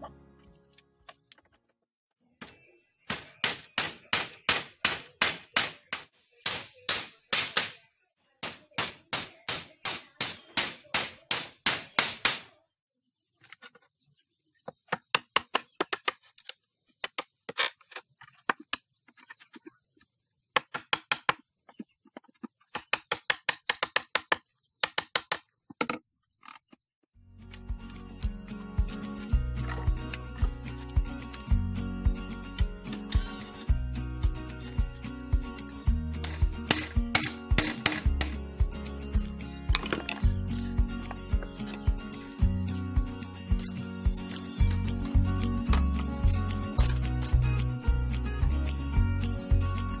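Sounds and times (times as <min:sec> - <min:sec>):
hammer striking bamboo: 0:02.4 - 0:07.8, 0:08.4 - 0:12.5, 0:22.7 - 0:25.4, 0:36.2 - 0:38.4.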